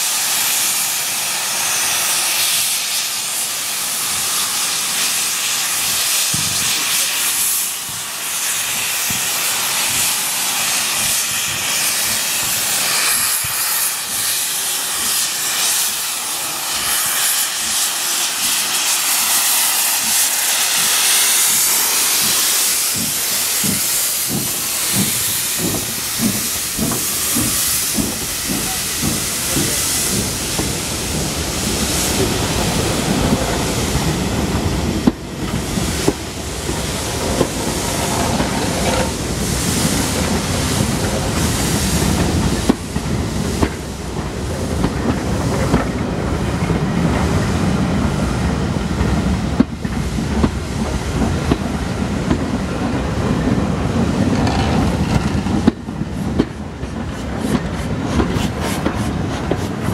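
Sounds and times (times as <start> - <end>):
steam hissing: 0.0 - 59.9
coaches rolling on rails: 7.8 - 59.9
rhythmic locomotive beat: 21.5 - 48.0.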